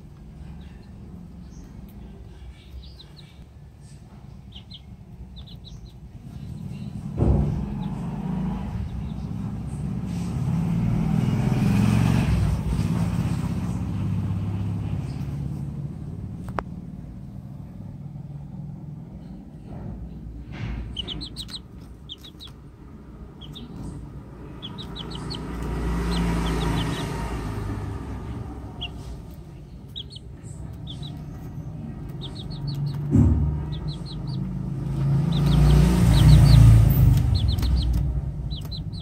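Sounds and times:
chicks peeping: 0:00.0 - 0:10.5, 0:20.0 - 0:39.0.

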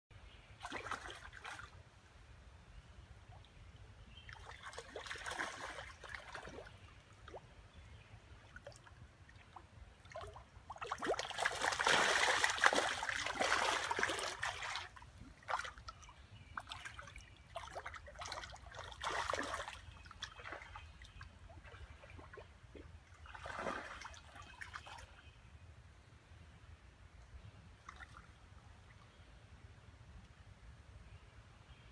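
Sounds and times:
fish splashing in water: 0:10.1 - 0:15.8.

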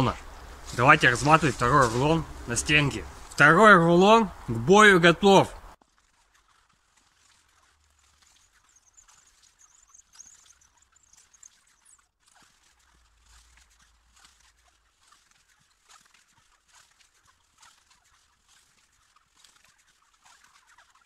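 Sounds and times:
faint ticks and rustles: 0:05.8 - 0:21.0.

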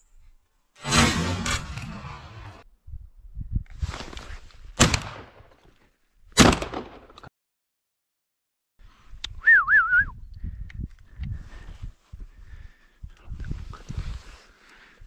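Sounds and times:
shotgun shots echoing: 0:04.8 - 0:05.4, 0:06.4 - 0:07.0.

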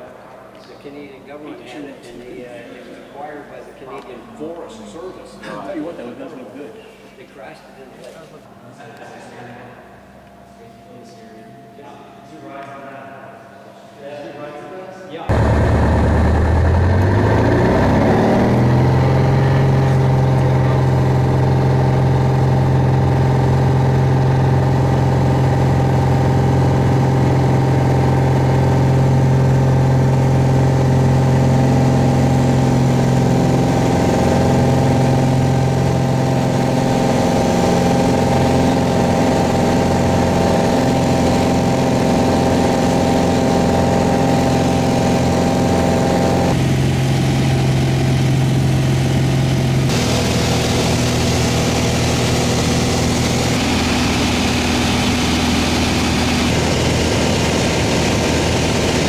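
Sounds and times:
propeller plane engine at full power: 0:15.3 - 0:59.0.

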